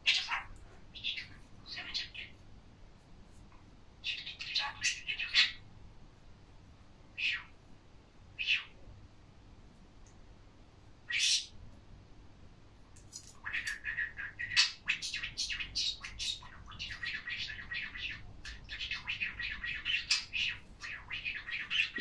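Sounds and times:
budgerigar chattering warble: 0.0 - 2.3, 4.1 - 5.6, 13.4 - 22.0
budgerigar chirp: 0.0 - 2.3, 4.0 - 5.6, 7.2 - 7.5, 8.4 - 8.8, 11.1 - 11.5, 13.4 - 22.0.

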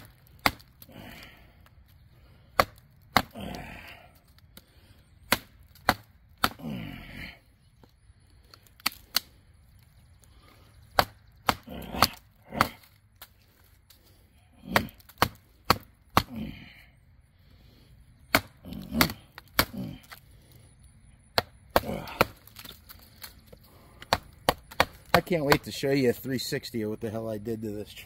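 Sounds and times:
knife chopping into wood: 0.0 - 0.8, 2.5 - 3.6, 5.3 - 6.7, 11.0 - 12.9, 14.6 - 16.4, 18.3 - 19.8, 21.4 - 22.8, 24.0 - 25.7
wood cracking and splintering: 0.0 - 16.6, 18.3 - 20.2, 21.4 - 25.8.

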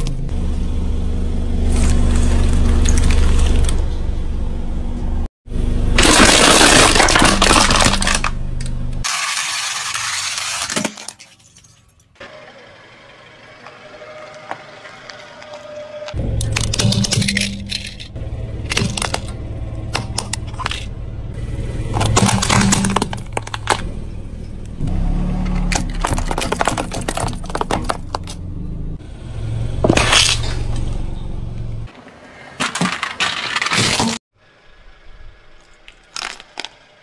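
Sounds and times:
plastic cracking under car tyre: 6.0 - 8.4, 21.9 - 23.9, 25.7 - 28.4, 35.8 - 36.9
steady low hum: 16.2 - 25.3.

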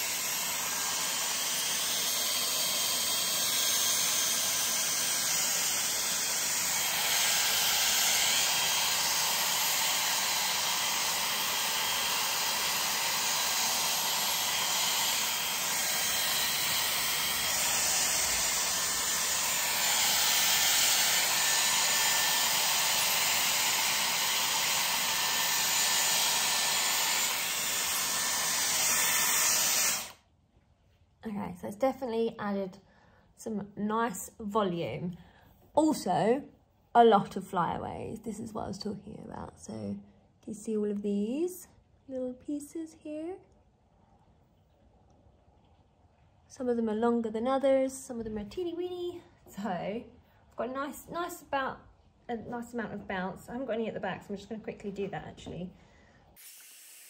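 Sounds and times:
hair styler blowing air: 0.0 - 30.2, 56.4 - 57.0.

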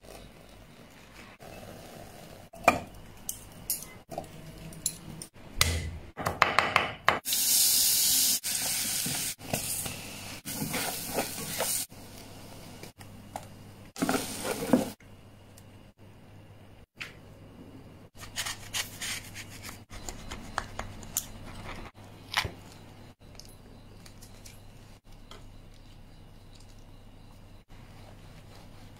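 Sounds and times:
hot oil sizzling: 7.2 - 12.7, 14.0 - 15.0.

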